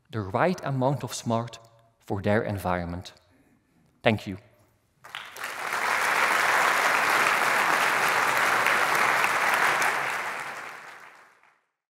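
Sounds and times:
audience applauding: 0:05.0 - 0:11.6.

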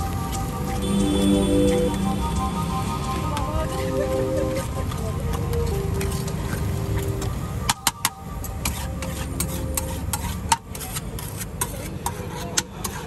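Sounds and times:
metal spatula scraping griddle: 0:08.4 - 0:13.0.

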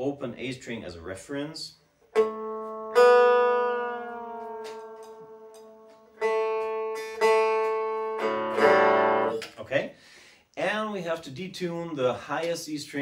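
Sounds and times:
resonator guitar strings plucked: 0:02.2 - 0:09.6.

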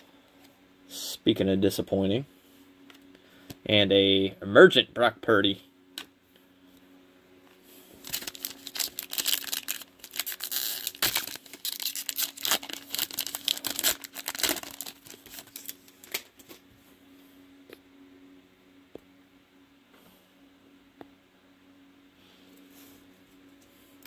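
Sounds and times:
wrapper tearing and crinkling: 0:08.0 - 0:16.5.

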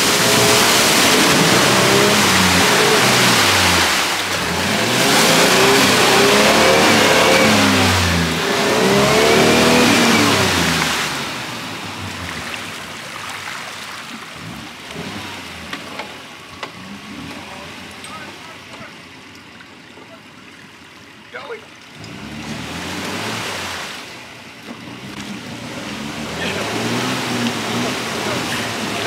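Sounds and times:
engine revving hard: 0:00.0 - 0:12.7, 0:14.4 - 0:16.0, 0:22.0 - 0:24.1, 0:24.8 - 0:29.0
water sloshing: 0:00.0 - 0:29.0
wheels churning water: 0:00.0 - 0:29.0.

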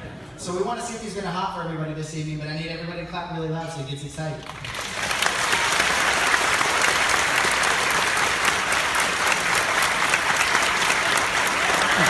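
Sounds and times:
audience clapping: 0:04.4 - 0:12.0.

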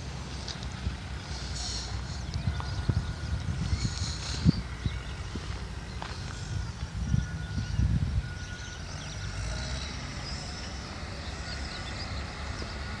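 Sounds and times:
wind on microphone: 0:00.7 - 0:08.8.

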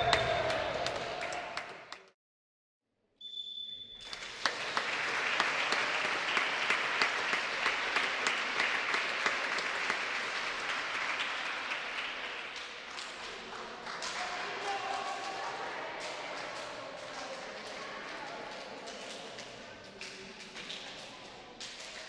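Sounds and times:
crowd applause: 0:00.0 - 0:02.1, 0:04.0 - 0:16.6
short high whistle tone: 0:03.2 - 0:04.0.

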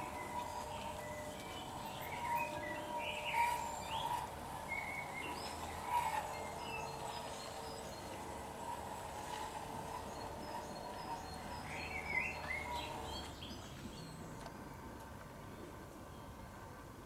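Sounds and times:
model train humming on track: 0:00.0 - 0:17.0
birds chirping: 0:09.8 - 0:14.4.

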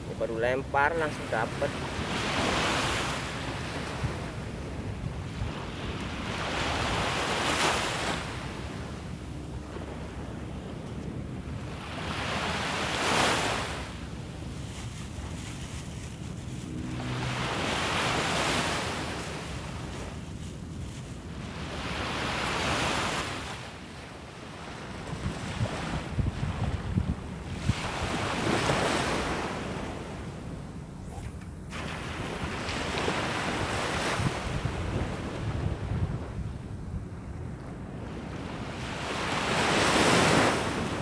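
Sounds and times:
waves washing on sandy beach: 0:00.0 - 0:41.0
wind buffeting microphone: 0:01.7 - 0:41.0.

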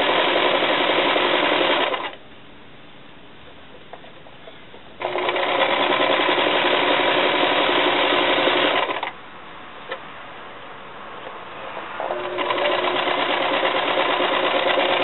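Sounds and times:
sewing machine running: 0:00.0 - 0:02.2, 0:05.0 - 0:09.1, 0:12.0 - 0:15.0.

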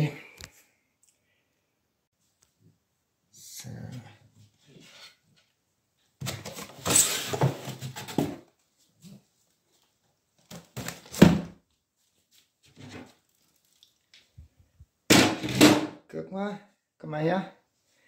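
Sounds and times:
boxes scraping and rustling: 0:04.6 - 0:05.3, 0:06.2 - 0:08.5.

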